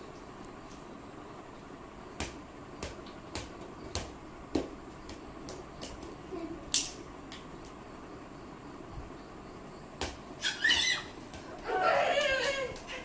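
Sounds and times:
plastic ball bouncing and slapped: 2.2 - 7.8, 10.0 - 10.2.

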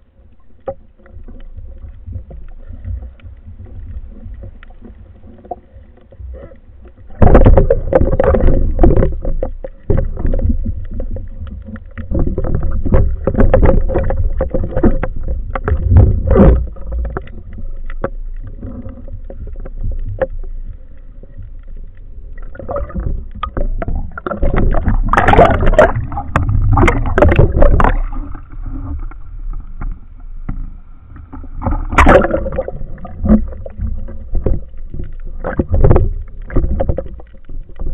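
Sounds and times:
low water rumble: 0.0 - 37.9
muffled underwater knocking: 6.3 - 19.0, 22.4 - 30.6, 31.2 - 37.9.

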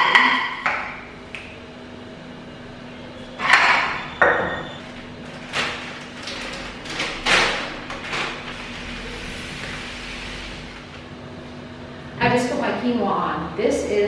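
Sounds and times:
paper bag rustling: 4.9 - 10.4.

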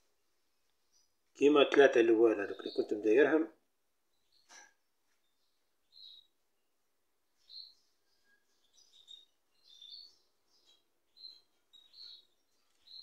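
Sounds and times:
finches chirping: 4.2 - 6.4, 7.3 - 13.0.

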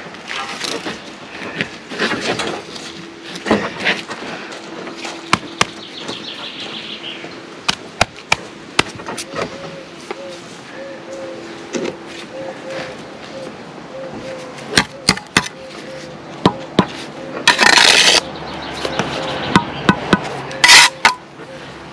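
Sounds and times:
steady low hum: 0.0 - 21.9
mortar scraping: 16.8 - 18.2, 19.0 - 21.2.

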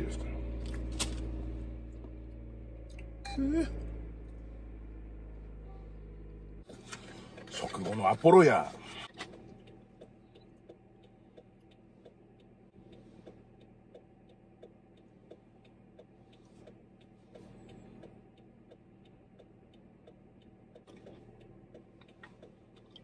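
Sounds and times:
car cabin hum: 0.0 - 23.0
faint even ticking: 9.3 - 23.0.

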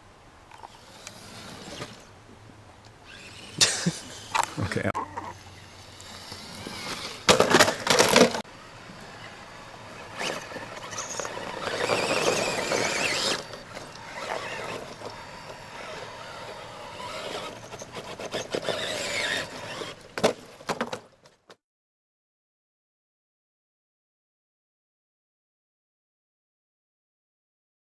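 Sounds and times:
rc car motor whining: 0.6 - 2.1, 3.0 - 20.6.

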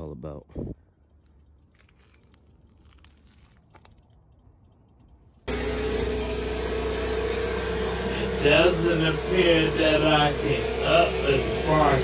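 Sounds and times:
snowblower engine running: 5.4 - 12.0.

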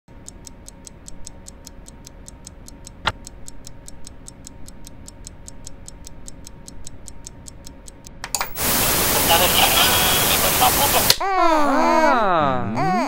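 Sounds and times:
clock ticking: 0.1 - 8.4.

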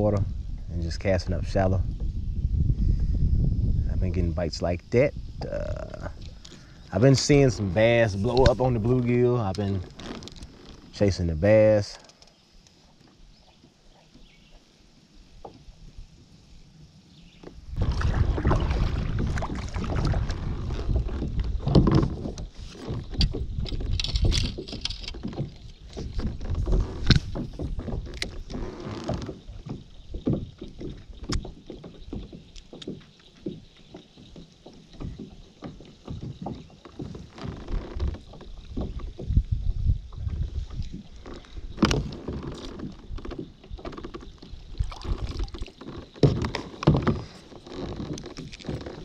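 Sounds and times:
water sounds: 4.0 - 49.0
knocks against boat hull: 41.7 - 44.1, 45.3 - 47.4.

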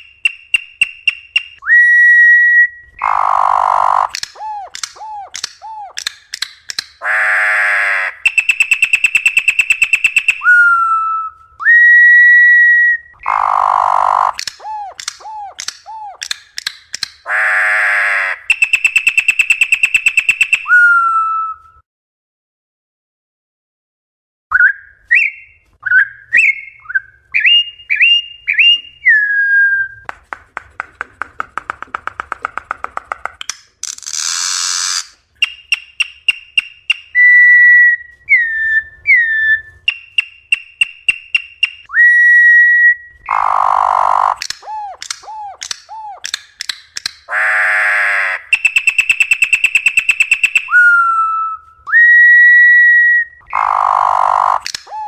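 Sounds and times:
bird singing whistled notes: 0.0 - 6.0, 8.2 - 16.2, 18.5 - 21.6, 24.5 - 30.0, 35.0 - 43.4, 48.5 - 55.0.

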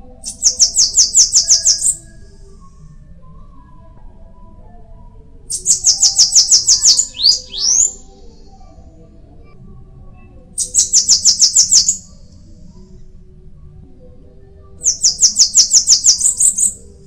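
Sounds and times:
bird singing buzzy notes: 0.2 - 2.4, 5.5 - 8.8, 10.6 - 12.3, 14.8 - 17.0.

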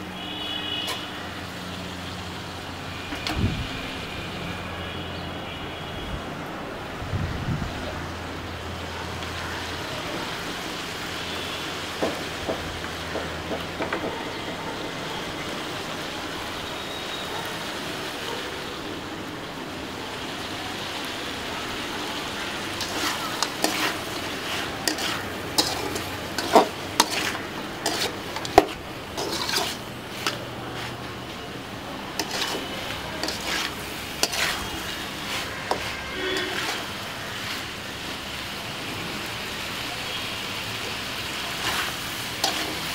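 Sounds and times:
chicken sizzling in a pan: 15.0 - 42.9
metal spatula scraping pan: 22.8 - 31.1, 32.2 - 37.7, 41.6 - 42.9.

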